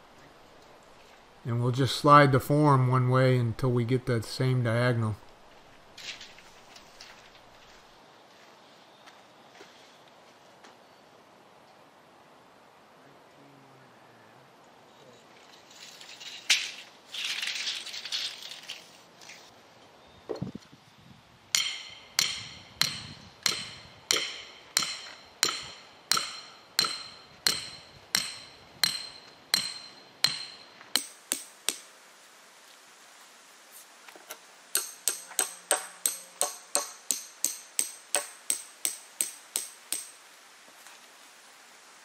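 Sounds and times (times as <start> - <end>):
hammer blows ringing: 21.6 - 31.8, 34.8 - 40.2.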